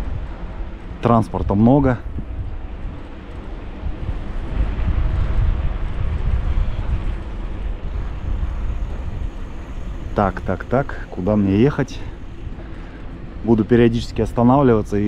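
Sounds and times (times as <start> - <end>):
cars and tyres rumbling past: 7.6 - 13.4.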